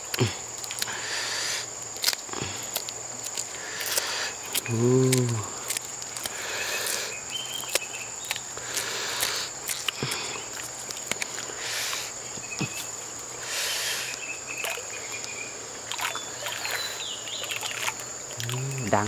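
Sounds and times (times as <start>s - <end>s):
high-pitched insect drone: 11.4s - 19.0s.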